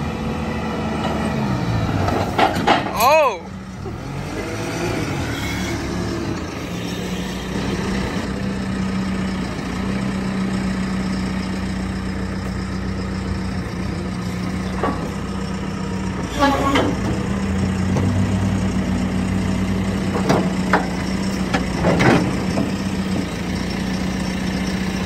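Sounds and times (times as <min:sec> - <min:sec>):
engine idling: 0:06.2 - 0:25.0.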